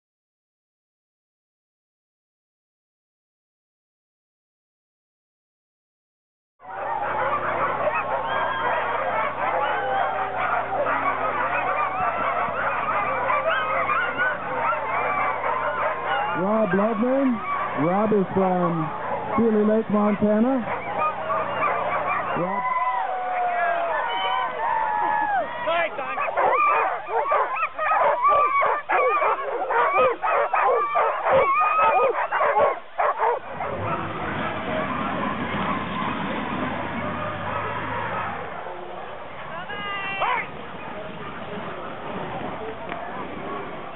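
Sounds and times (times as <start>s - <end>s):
sled dogs yelping and howling: 6.6s - 41.5s.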